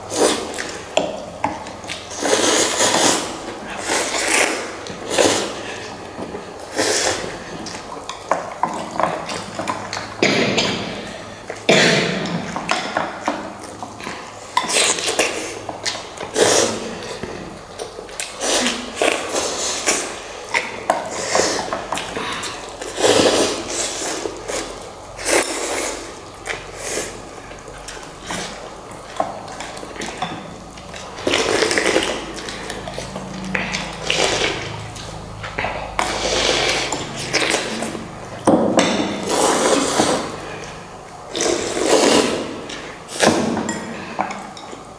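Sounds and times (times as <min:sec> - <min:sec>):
eating noises: 0:00.0 - 0:44.9
utensils clinking against bowls: 0:28.3 - 0:40.8, 0:41.8 - 0:44.8.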